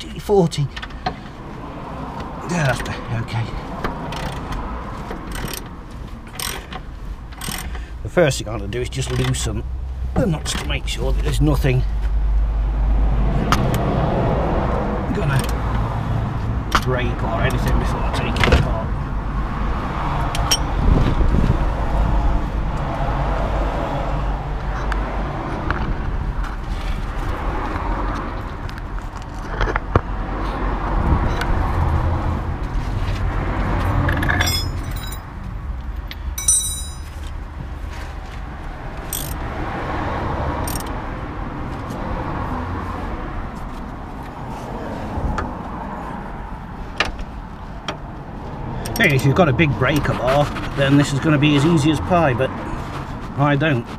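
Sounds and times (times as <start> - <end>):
metallic clinks of hand tools: 36.4 - 37.1.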